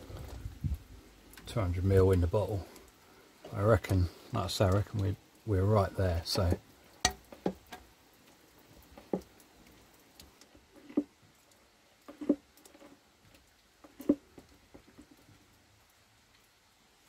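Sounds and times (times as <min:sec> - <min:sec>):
wet squelches of pumped oil: 0:02.4 - 0:15.3.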